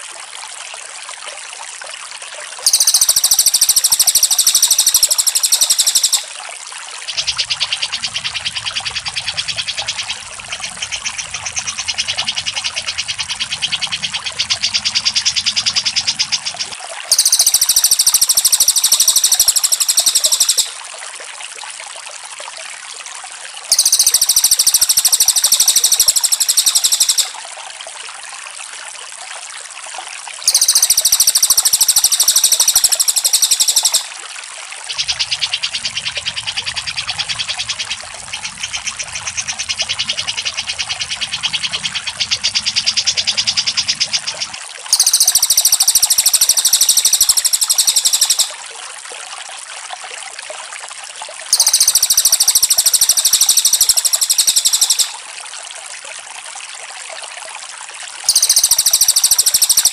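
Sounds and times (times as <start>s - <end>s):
fast repeated bird notes: 2.7s - 6.4s, 7.1s - 20.8s, 23.7s - 27.4s, 30.4s - 34.1s, 34.9s - 48.6s, 51.5s - 55.2s, 58.3s - 59.9s
loud high rapid bird trill: 2.7s - 6.4s, 7.1s - 20.8s, 23.7s - 27.4s, 30.4s - 34.1s, 34.9s - 48.6s, 51.5s - 55.2s, 58.3s - 59.9s.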